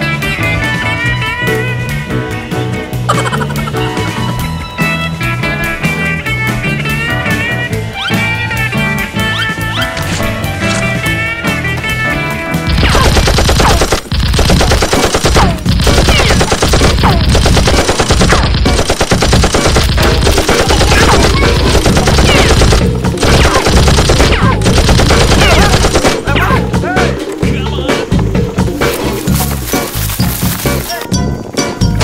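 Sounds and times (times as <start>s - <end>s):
automatic gunfire: 12.7s - 26.3s.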